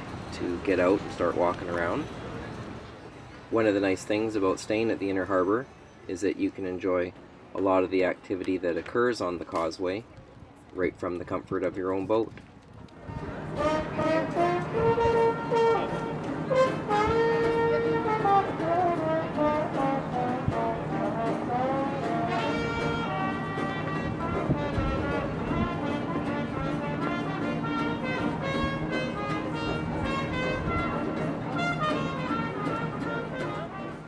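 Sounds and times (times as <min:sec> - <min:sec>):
street music melody: 0:00.0 - 0:34.0
low musical accompaniment: 0:13.2 - 0:34.0.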